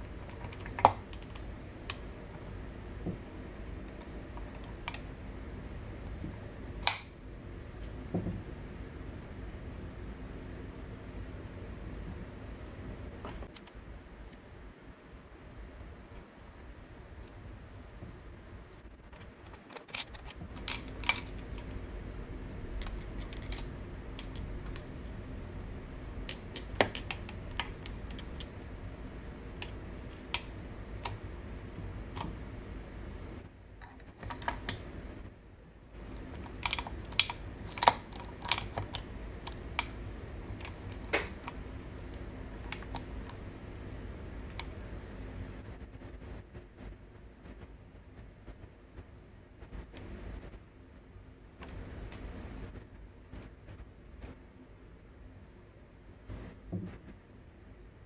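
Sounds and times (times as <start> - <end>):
steady low hum: 0.0 - 58.0
metal parts clicking and tapping: 19.0 - 21.8, 22.8 - 24.9, 26.2 - 28.5, 36.2 - 41.6.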